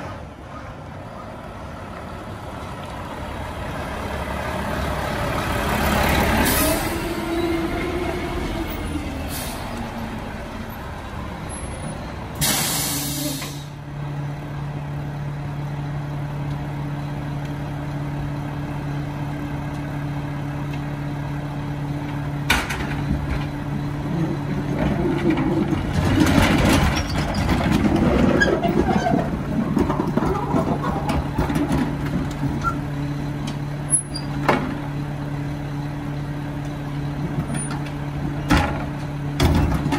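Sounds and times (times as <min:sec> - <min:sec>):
air brake hiss: 0:12.4 - 0:13.8
clattering and banging: 0:24.6 - 0:32.7.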